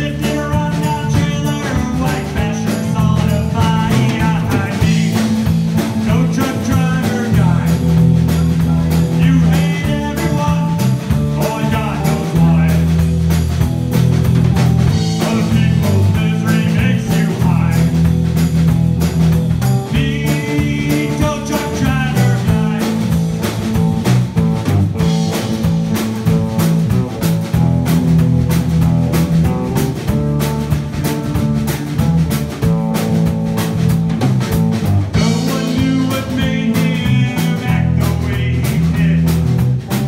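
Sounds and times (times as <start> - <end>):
guitar: 0.0 - 40.0
rock band playing blues tune: 0.0 - 40.0
steady drum beat: 0.0 - 40.0.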